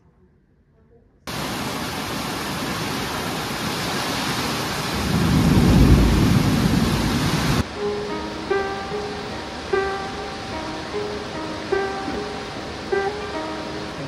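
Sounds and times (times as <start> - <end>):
heavy rain pouring: 1.3 - 14.0
deep rumble of thunder: 4.9 - 7.7.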